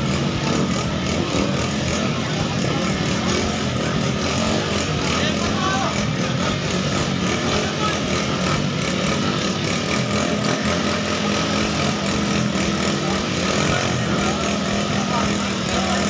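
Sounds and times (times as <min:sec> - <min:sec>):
scooter engines running at low revs: 0:00.0 - 0:16.0.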